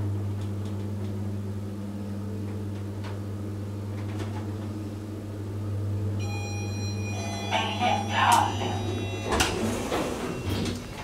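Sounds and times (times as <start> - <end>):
elevator drive humming: 0.0 - 11.0
high-pitched tone: 6.2 - 9.5
elevator car clicks and rattles: 8.2 - 11.0.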